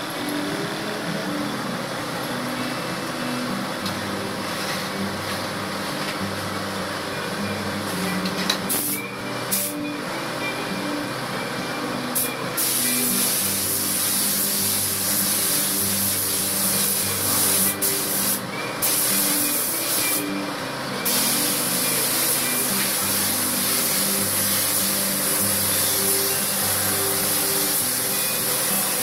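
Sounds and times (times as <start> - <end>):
paint spray gun hissing: 8.7 - 9.8, 12.2 - 20.4, 21.0 - 29.0.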